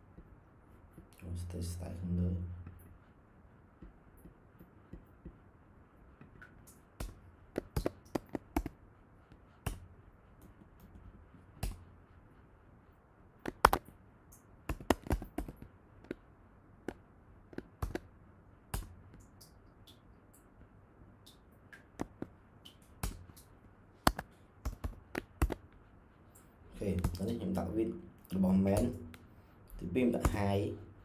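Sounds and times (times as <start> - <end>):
faint steady hiss: 0.0 - 31.0
computer keyboard keys clicking: 24.1 - 25.6.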